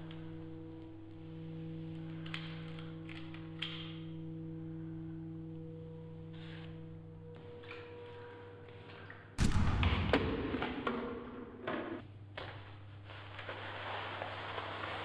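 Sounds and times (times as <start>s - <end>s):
low steady drone: 0.0s - 12.2s
pistol gunshot with decaying tail: 9.4s - 11.3s
sharp gunshot crack: 9.4s - 11.3s.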